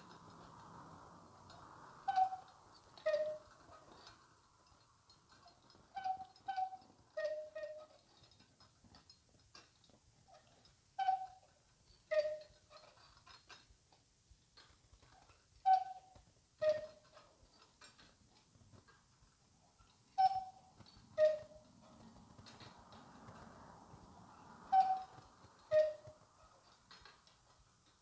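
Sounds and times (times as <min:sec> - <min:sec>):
cuckoo clock call: 0:02.1 - 0:03.5, 0:06.0 - 0:07.8, 0:12.1 - 0:12.5, 0:20.2 - 0:21.6, 0:24.7 - 0:26.2.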